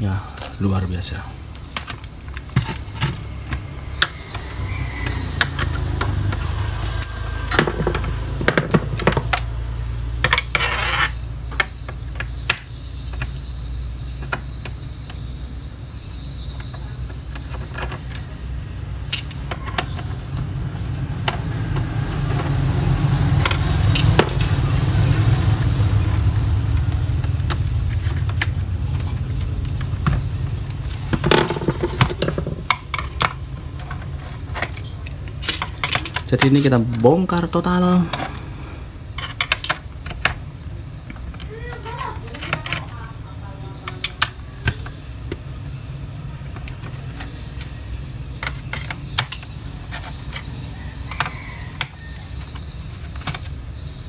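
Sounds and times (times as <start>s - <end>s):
plastic clicks and knocks: 28.2s - 37.0s.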